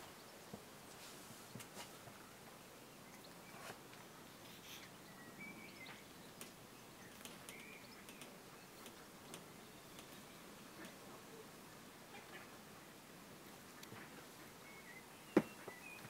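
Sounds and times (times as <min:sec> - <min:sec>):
small clicks: 0:06.4 - 0:10.2.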